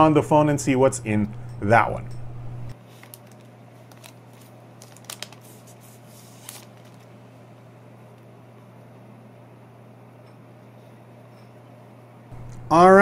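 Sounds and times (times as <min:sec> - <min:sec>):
low steady hum: 0:00.0 - 0:05.2, 0:05.8 - 0:13.0
plastic film crinkling: 0:02.8 - 0:07.1.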